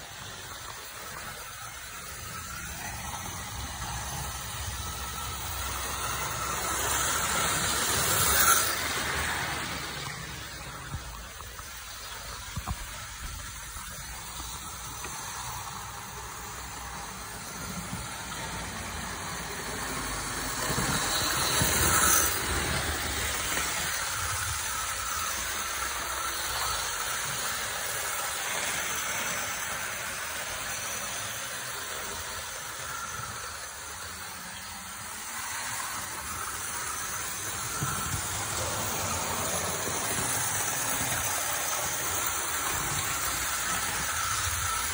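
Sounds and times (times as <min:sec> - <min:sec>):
model train whirring on track: 0:00.0 - 0:44.9.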